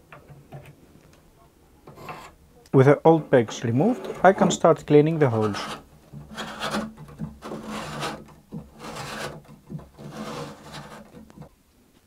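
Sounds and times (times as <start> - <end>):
reamer scraping in wooden holes: 1.9 - 2.4, 3.3 - 11.5.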